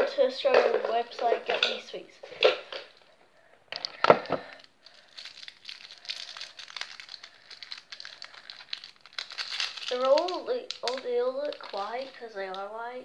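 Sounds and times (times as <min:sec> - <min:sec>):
plastic wrapper crinkling: 0:00.0 - 0:13.0.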